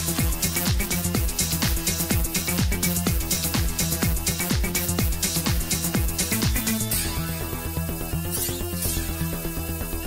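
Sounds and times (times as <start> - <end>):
kick drum beat: 0.0 - 6.8
electronic dance music: 0.0 - 10.0
hi-hats: 0.0 - 10.0.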